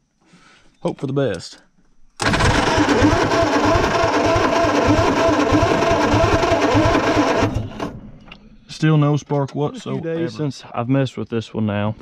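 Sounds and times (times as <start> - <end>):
starter motor cranking: 2.2 - 8.0.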